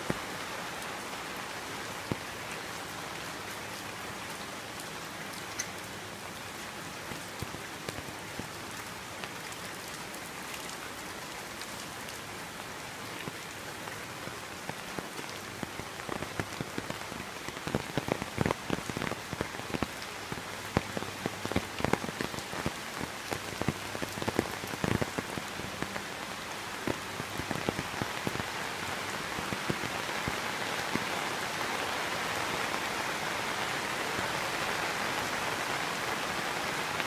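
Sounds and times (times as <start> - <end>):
close raindrop impacts: 13.1 - 37.0
heavy rain hissing: 13.2 - 37.0.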